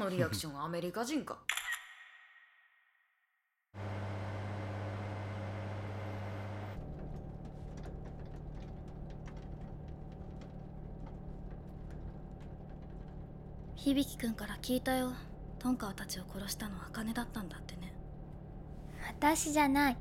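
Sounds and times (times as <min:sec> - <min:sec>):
bus engine rumbling: 0:03.8 - 0:20.0
faint clicks and rattles: 0:06.8 - 0:16.6.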